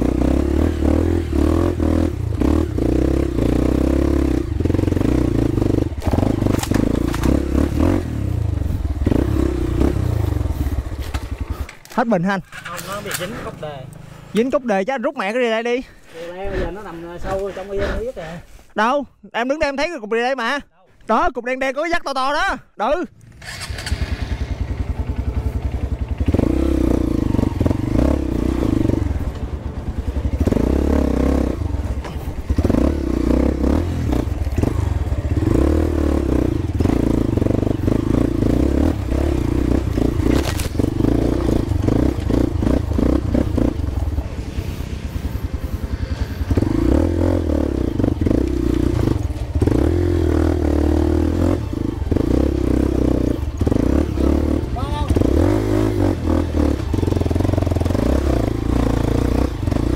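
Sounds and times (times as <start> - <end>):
dirt bike engine running: 0.0 - 14.5, 23.6 - 59.9
rattles and scrapes over rough ground: 5.7 - 7.8, 10.2 - 14.6, 37.8 - 47.0
sharp crack: 6.0 - 7.6, 40.2 - 41.2.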